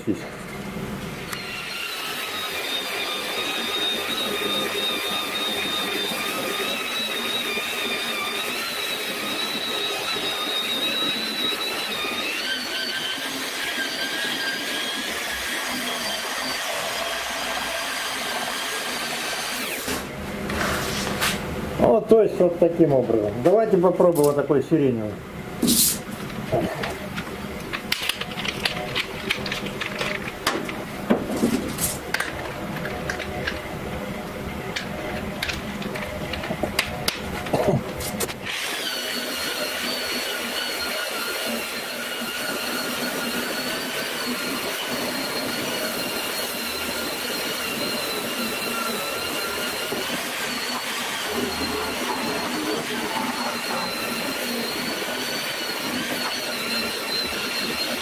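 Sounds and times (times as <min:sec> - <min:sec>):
rotary sander grinding metal: 0:01.3 - 0:20.6, 0:26.2 - 0:33.7, 0:34.6 - 0:58.0.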